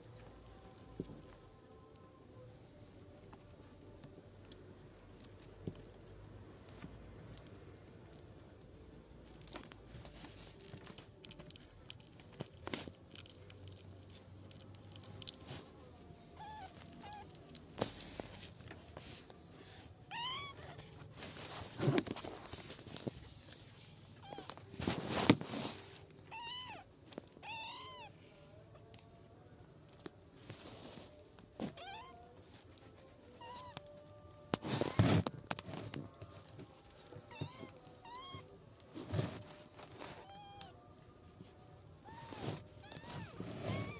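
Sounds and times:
kittens mewing: 0:37.3 - 0:38.6.

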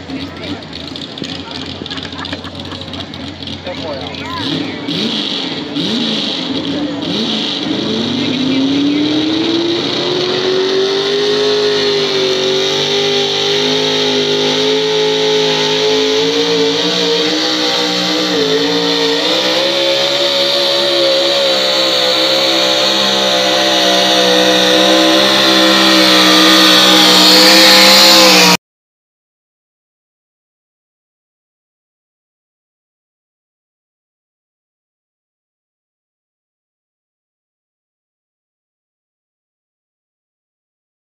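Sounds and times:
truck engine at high revs: 0:00.0 - 0:28.6.

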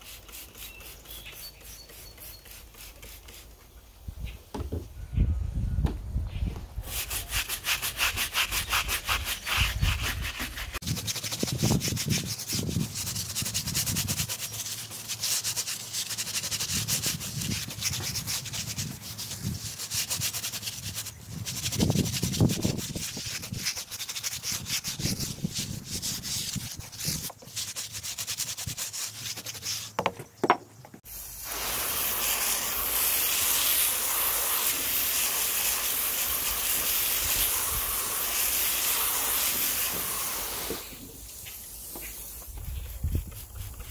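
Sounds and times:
brush scrubbing rubber tire: 0:00.0 - 0:03.6, 0:06.8 - 0:30.1, 0:31.2 - 0:43.9
hose spraying water: 0:00.0 - 0:03.6, 0:31.0 - 0:43.9.

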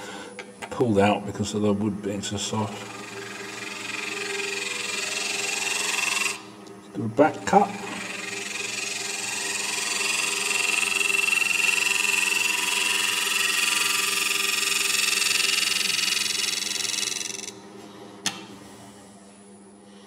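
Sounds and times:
lathe motor hum: 0:01.5 - 0:17.9
hiss of wood cutting on lathe: 0:02.4 - 0:06.5, 0:07.3 - 0:17.5.

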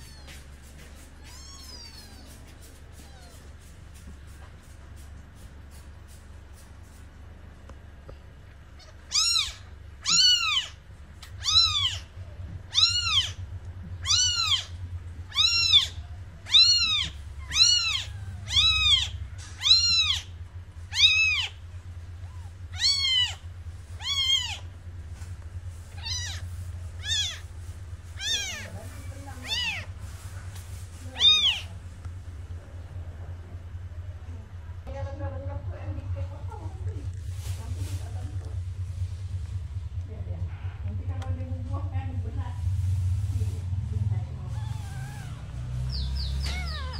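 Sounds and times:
kitten mewing: 0:00.0 - 0:03.7, 0:08.8 - 0:13.4, 0:14.0 - 0:20.3, 0:20.9 - 0:21.6, 0:22.2 - 0:24.7, 0:25.8 - 0:30.4, 0:31.0 - 0:31.8, 0:44.4 - 0:46.9
steady low hum: 0:00.0 - 0:46.9.

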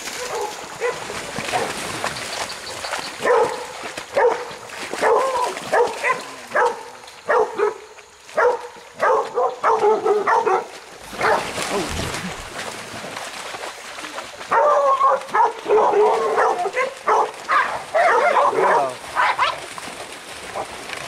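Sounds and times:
dogs barking: 0:00.1 - 0:01.8, 0:03.2 - 0:11.9, 0:14.5 - 0:19.6.

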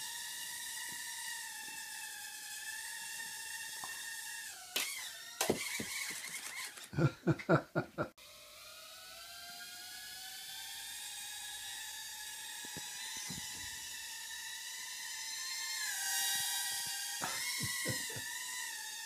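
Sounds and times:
small drone motors whining: 0:00.0 - 0:07.2, 0:08.2 - 0:19.0.

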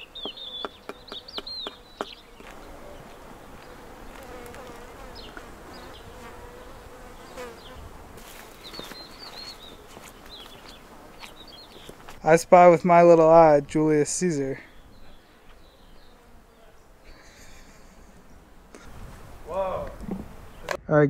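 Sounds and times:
bird chirps: 0:00.0 - 0:03.8, 0:08.6 - 0:12.0, 0:14.6 - 0:18.4
bee buzzing: 0:00.0 - 0:12.3, 0:13.2 - 0:20.7.

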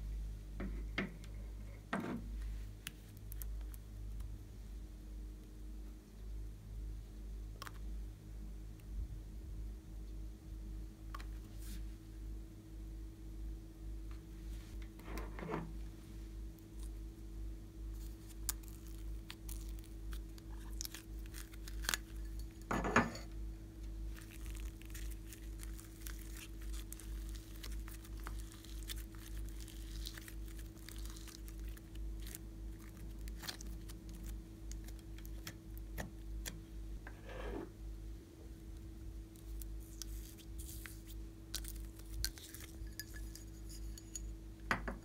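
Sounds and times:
sticky slime clicks and crackles: 0:24.1 - 0:36.6.

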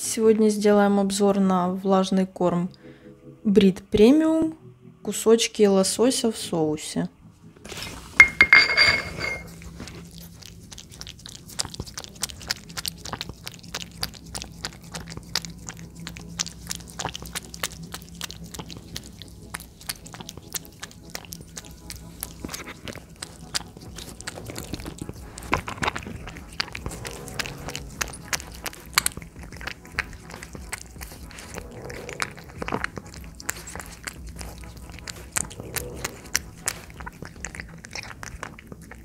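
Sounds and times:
cat chewing wet food: 0:09.1 - 0:39.0.

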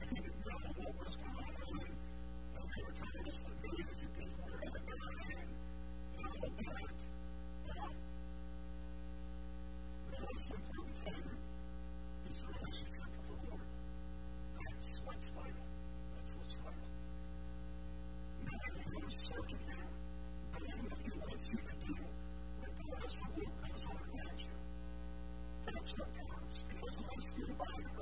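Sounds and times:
electrical mains hum: 0:00.0 - 0:28.0.

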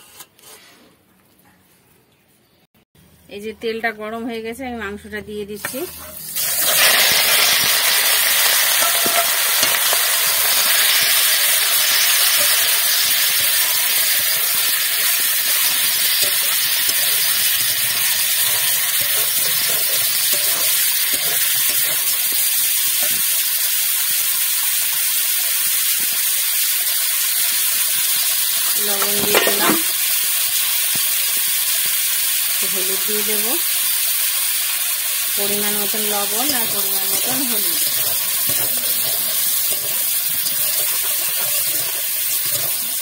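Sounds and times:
meat sizzling in hot oil: 0:05.6 - 0:43.0
metal spatula scraping: 0:08.4 - 0:23.3, 0:35.8 - 0:43.0.

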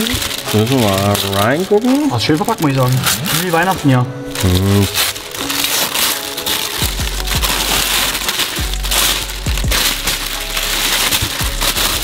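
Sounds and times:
packaging rustling and crinkling: 0:00.0 - 0:12.0.

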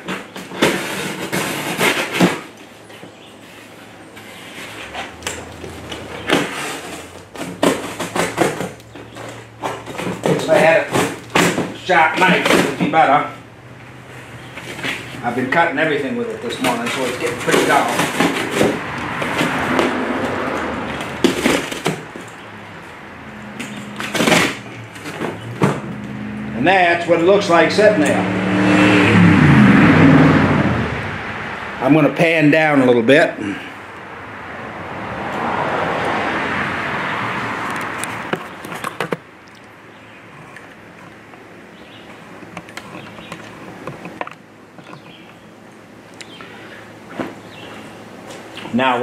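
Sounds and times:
cardboard tearing: 0:00.2 - 0:02.6, 0:04.2 - 0:11.7
passing vehicle road noise: 0:03.1 - 0:49.0
cardboard crunch: 0:16.4 - 0:20.4
sharp clicks and knocks: 0:42.4 - 0:45.4.

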